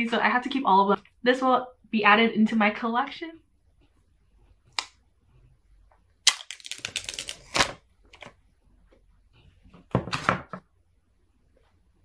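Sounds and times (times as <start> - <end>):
paper seal strip ripping: 6.3 - 7.7.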